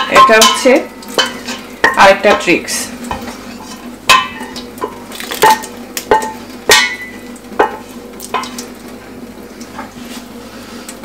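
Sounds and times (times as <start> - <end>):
water pouring: 5.1 - 5.8.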